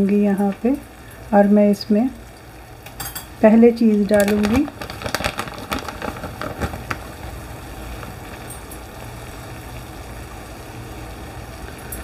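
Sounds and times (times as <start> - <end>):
sauce sizzling in frying pan: 0.0 - 12.0
small clicks and pops: 3.9 - 8.9.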